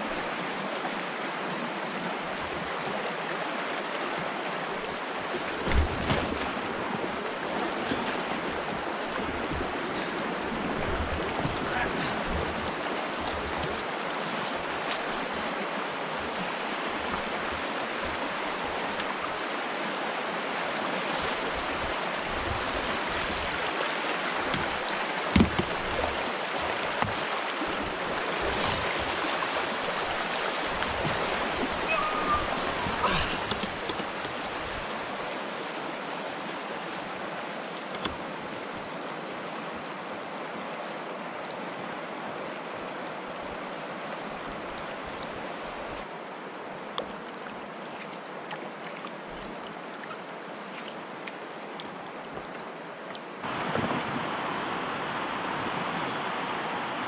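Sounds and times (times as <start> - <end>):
river rapids rushing: 0.0 - 47.2, 52.1 - 57.0.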